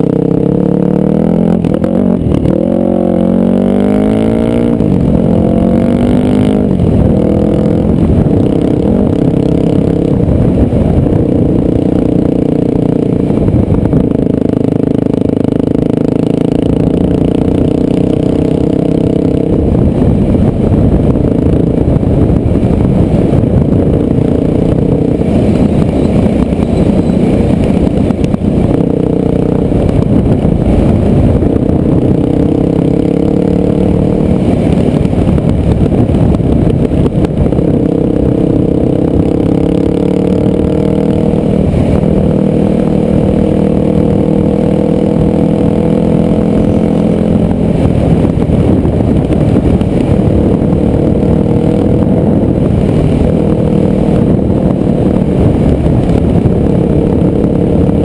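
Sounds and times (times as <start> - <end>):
dirt bike engine revving: 0.0 - 10.2, 23.1 - 58.0.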